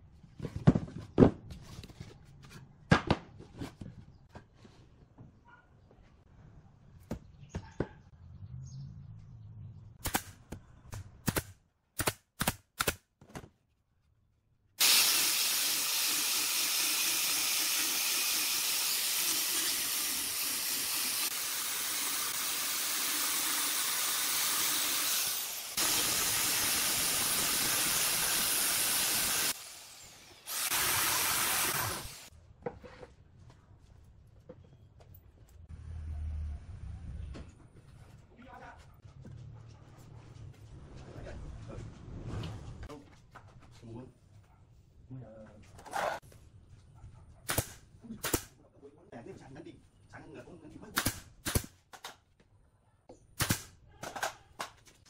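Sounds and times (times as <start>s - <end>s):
angle grinder sanding wood: 14.8s - 32.3s.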